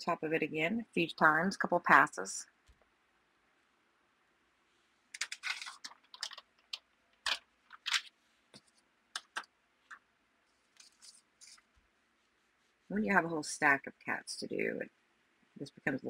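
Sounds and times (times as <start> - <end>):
paper crinkling under iron: 5.2 - 6.4.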